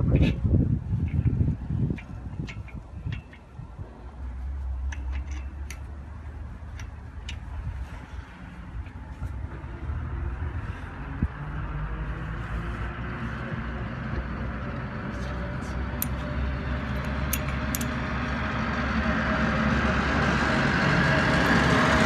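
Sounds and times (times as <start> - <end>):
steady low rumble: 0.0 - 22.0
metal fence clips clicking: 1.9 - 3.5, 4.8 - 7.6, 16.0 - 16.3, 16.9 - 18.0.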